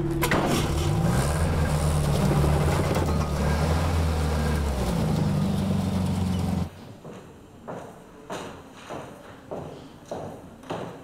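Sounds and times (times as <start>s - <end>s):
car engine running: 0.0s - 6.7s.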